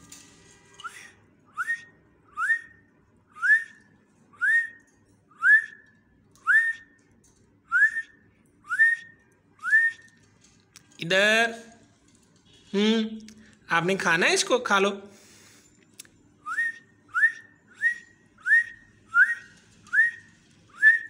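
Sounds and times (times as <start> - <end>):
rising whistle notes: 16.4 - 21.0.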